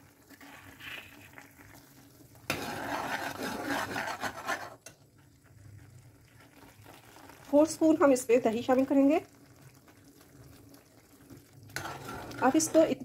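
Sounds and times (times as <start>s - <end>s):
sauce simmering hiss: 0.0s - 13.0s
metal spoon scraping a pan: 2.5s - 5.0s, 11.8s - 13.0s.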